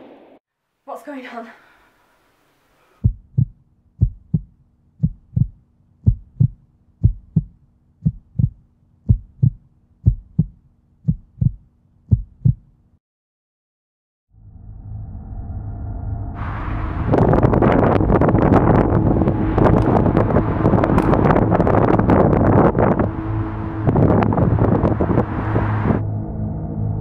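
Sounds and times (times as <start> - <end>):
heartbeat double thumps: 3.0 - 12.7
wind-like rush: 16.4 - 26.1.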